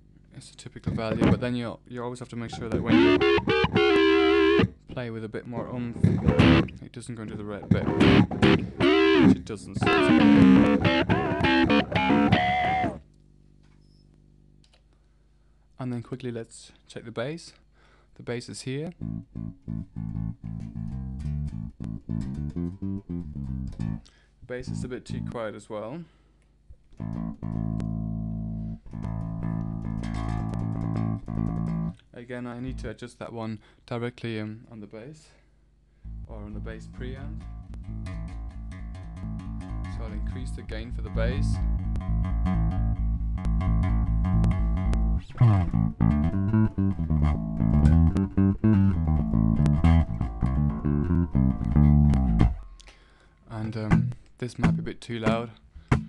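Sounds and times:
electric bass sustained notes: 2.5s - 5.0s, 5.8s - 13.0s, 18.9s - 25.4s, 27.0s - 32.0s, 32.6s - 33.0s, 36.0s - 52.7s, 53.5s - 55.0s.

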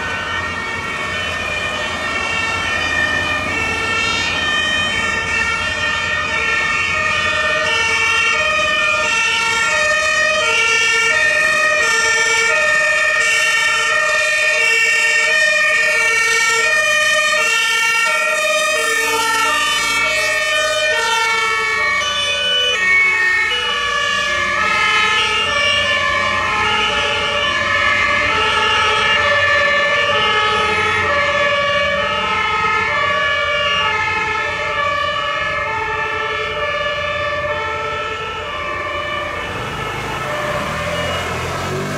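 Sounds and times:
two-tone sirens: 0.0s - 41.9s
low vehicle rumble: 37.5s - 41.9s.

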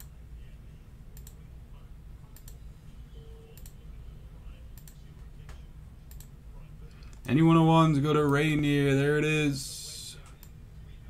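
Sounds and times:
steady low hum: 0.0s - 11.0s
computer mouse clicks: 1.2s - 1.4s, 2.3s - 2.6s, 3.6s - 3.8s, 4.8s - 5.0s, 6.1s - 6.3s.

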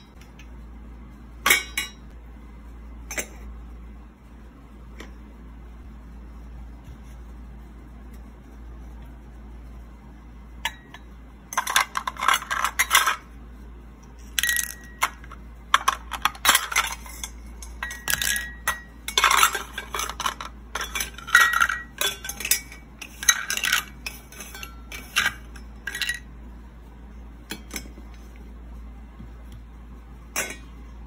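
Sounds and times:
metal tongs clinking on pot: 16.4s - 26.2s.

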